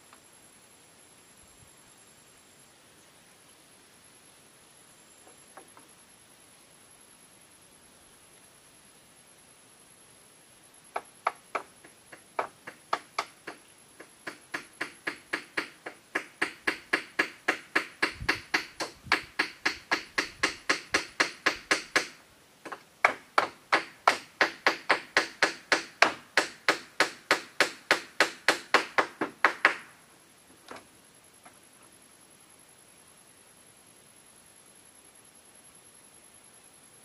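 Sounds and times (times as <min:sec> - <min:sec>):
hammer striking bamboo: 0:11.0 - 0:30.0.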